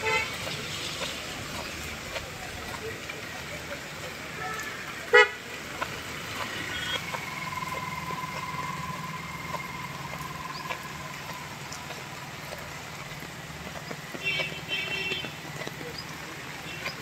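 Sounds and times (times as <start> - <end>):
heavy rain on pavement: 0.0 - 17.0
vehicle engine idling: 5.1 - 17.0.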